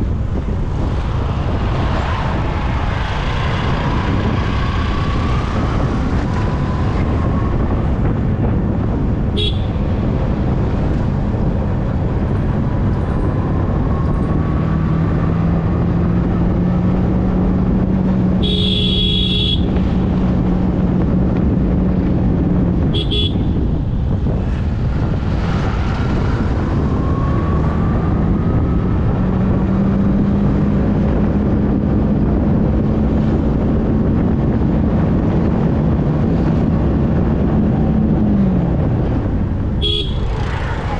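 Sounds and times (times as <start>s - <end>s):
road and wind noise: 0.0s - 40.9s
vehicle horn honking: 9.4s - 9.8s, 18.4s - 19.8s, 22.9s - 23.6s, 39.8s - 40.4s.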